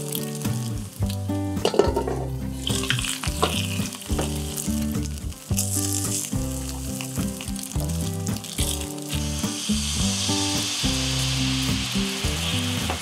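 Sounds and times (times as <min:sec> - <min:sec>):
background music: 0:00.0 - 0:13.0
patties sizzling in a frying pan: 0:00.0 - 0:13.0.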